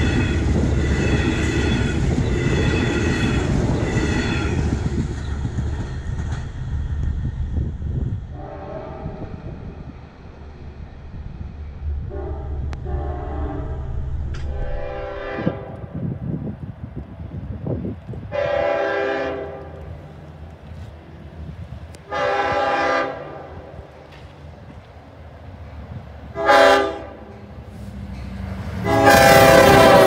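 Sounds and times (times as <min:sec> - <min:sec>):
train rumble: 0:00.0 - 0:30.0
locomotive horn blasts: 0:08.3 - 0:09.4, 0:12.0 - 0:16.0, 0:18.3 - 0:19.9, 0:22.1 - 0:23.7, 0:26.3 - 0:27.4, 0:28.8 - 0:30.0.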